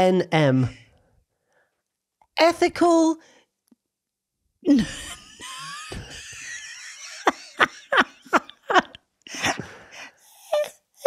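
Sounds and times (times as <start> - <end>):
woman laughing hard: 4.8 - 9.7.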